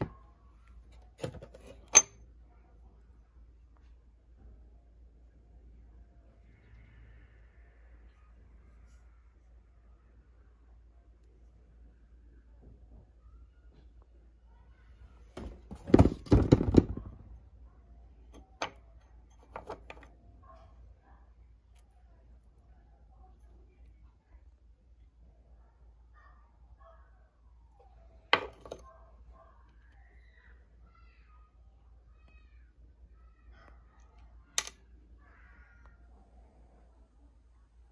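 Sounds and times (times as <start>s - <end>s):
metal part clicking: 1.8s - 2.1s.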